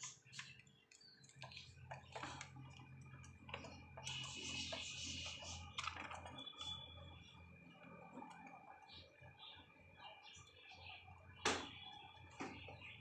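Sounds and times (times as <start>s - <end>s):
beak clicks and crunches: 0.0s - 6.8s.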